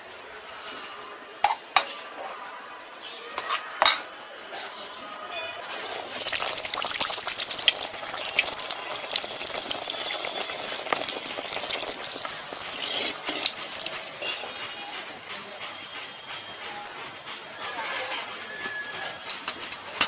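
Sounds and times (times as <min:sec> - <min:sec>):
hot oil sizzling and crackling: 0:05.6 - 0:17.0
wire skimmer scraping pot: 0:05.8 - 0:15.0.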